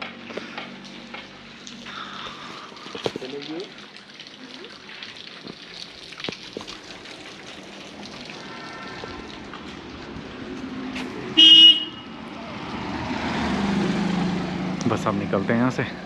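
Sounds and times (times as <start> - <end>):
car approaching: 6.7 - 16.0
vehicle horn toot: 11.4 - 12.2.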